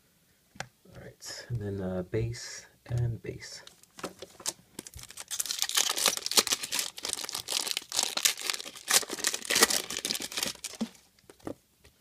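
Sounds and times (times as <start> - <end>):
foil wrapper tearing and crinkling: 4.4 - 11.0.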